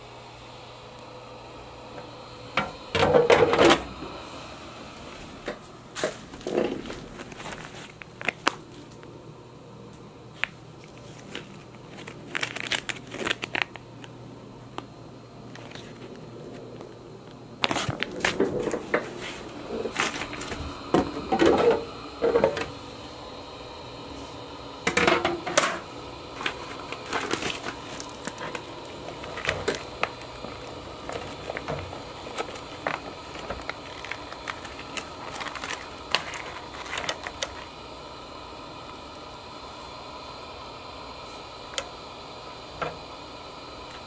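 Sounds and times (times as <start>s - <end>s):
plastic bag crinkling: 6.0s - 9.1s, 10.4s - 14.2s, 15.5s - 16.9s, 17.6s - 20.6s, 26.4s - 37.8s.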